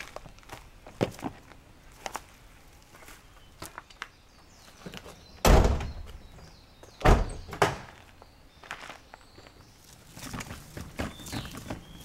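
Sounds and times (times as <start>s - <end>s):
car door thudding shut: 5.4s - 6.0s, 7.0s - 7.9s.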